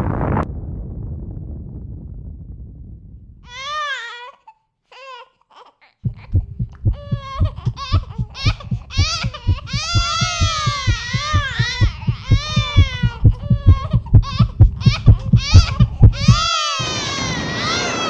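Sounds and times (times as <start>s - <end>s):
fast low thudding pulse: 0.0s - 3.4s, 6.1s - 16.5s
low rumble: 0.0s - 3.5s, 6.1s - 16.5s.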